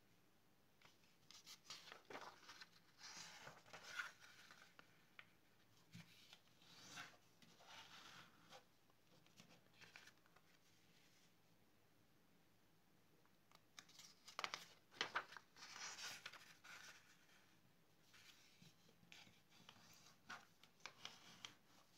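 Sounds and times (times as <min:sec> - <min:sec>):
paper rustling: 0:00.8 - 0:08.6, 0:13.8 - 0:17.5, 0:18.1 - 0:21.9.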